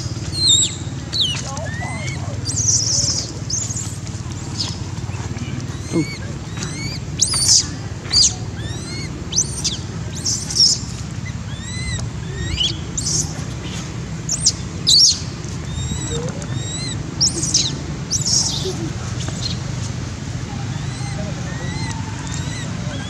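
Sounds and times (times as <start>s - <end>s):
low background rumble: 0.0s - 23.0s
baby monkey squealing: 5.8s - 10.8s, 11.5s - 13.3s, 14.3s - 18.8s, 20.5s - 23.0s.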